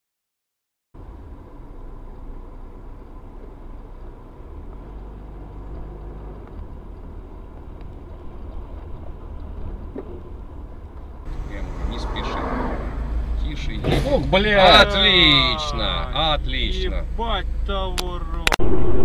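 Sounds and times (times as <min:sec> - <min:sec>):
car interior engine and road rumble: 0:01.0 - 0:19.0.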